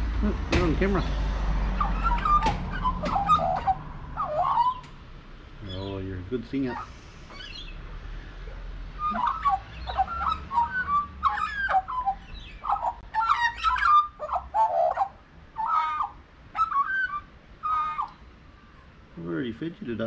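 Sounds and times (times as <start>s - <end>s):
magpie warbling song: 1.6s - 4.9s, 9.0s - 18.4s.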